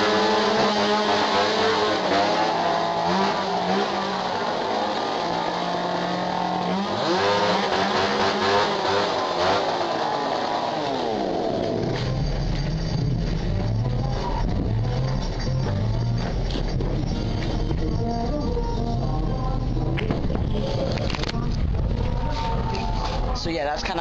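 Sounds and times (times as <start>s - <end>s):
chainsaw engine revving: 0.0s - 16.8s.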